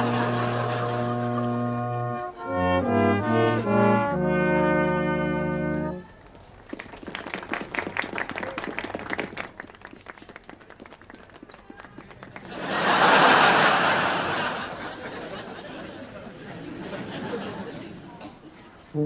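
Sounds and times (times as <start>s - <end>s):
brass band playing chords: 0.0s - 6.1s.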